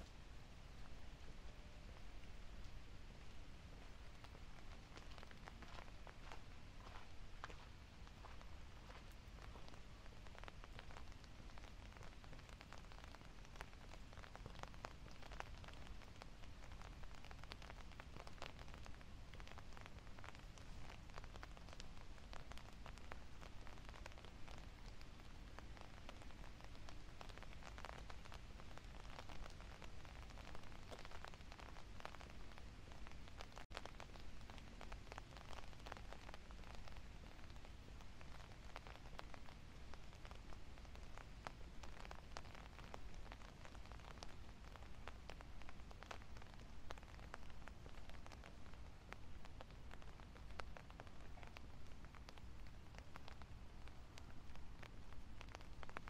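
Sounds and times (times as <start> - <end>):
light rain pattering: 0.0 - 56.0.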